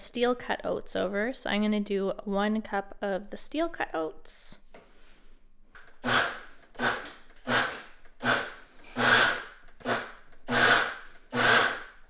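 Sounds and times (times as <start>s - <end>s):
blender motor chopping oats: 6.0s - 12.0s.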